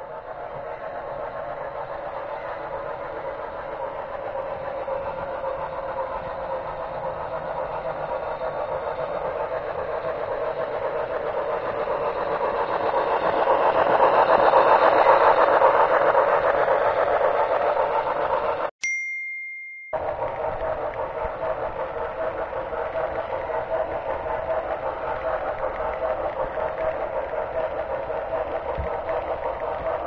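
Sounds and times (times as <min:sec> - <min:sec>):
model train rolling rattle: 0:00.0 - 0:18.7, 0:20.0 - 0:30.0.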